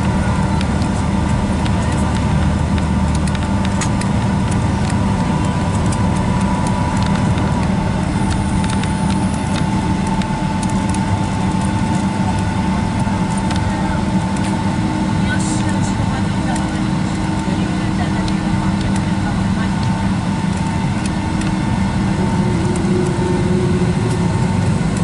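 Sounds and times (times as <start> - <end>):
jet engines at low power: 0.0 - 25.0
steady whine: 0.0 - 25.0
faint clicks and rattles: 0.5 - 14.7.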